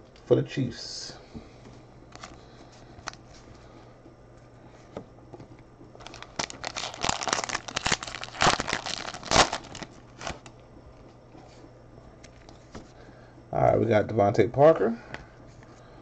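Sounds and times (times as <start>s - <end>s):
foil wrapper crinkling and tearing: 6.0s - 10.5s.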